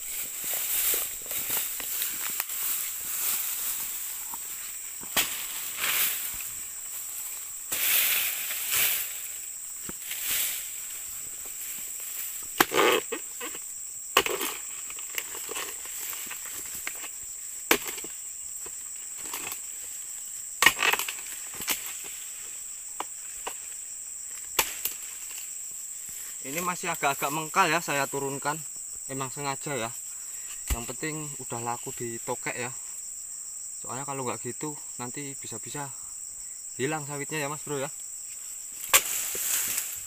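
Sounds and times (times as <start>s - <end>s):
footsteps rustling through grass: 0.0s - 12.4s, 38.2s - 40.0s
high insect buzz: 0.0s - 40.0s
blade chopping palm fronds: 5.0s - 6.4s, 12.5s - 13.6s, 14.2s - 17.1s, 17.7s - 18.2s, 20.6s - 22.2s, 24.5s - 25.4s, 30.6s - 30.9s, 38.8s - 40.0s.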